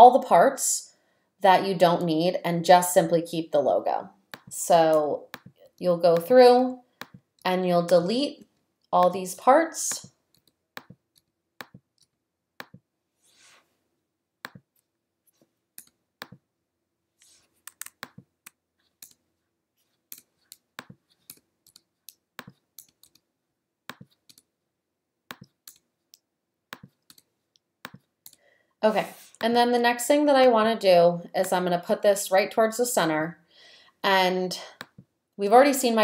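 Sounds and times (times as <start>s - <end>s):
computer mouse clicking: 10.3s - 12.8s, 17.6s - 19.2s, 20.1s - 23.3s, 23.9s - 24.5s, 25.3s - 28.4s.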